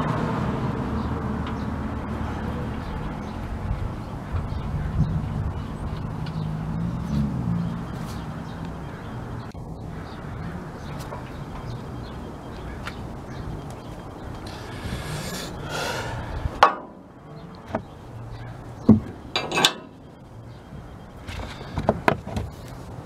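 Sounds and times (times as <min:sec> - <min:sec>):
tow hook scraping steel bumper: 0:16.6 - 0:20.2
sharp metal clank: 0:19.4 - 0:20.0.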